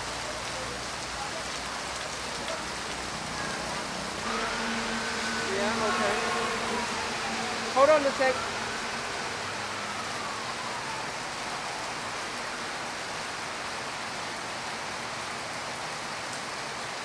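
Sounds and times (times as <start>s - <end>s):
rain-like hiss: 0.0s - 17.0s
faint police siren wail: 3.1s - 15.0s.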